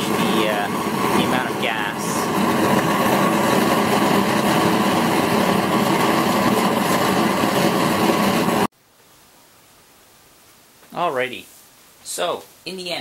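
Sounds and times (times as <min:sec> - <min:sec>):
propane burner roaring: 0:00.0 - 0:08.7.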